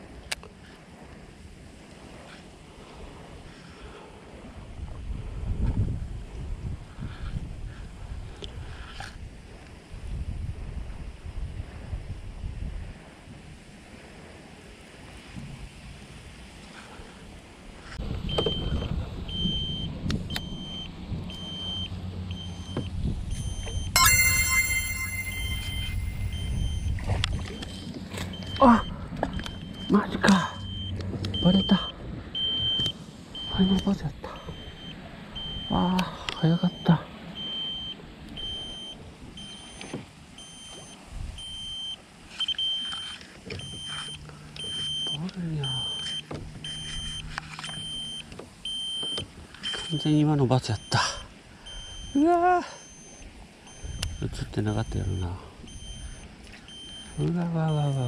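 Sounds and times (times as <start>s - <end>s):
short high beep: 24.0s - 27.0s, 43.6s - 47.2s.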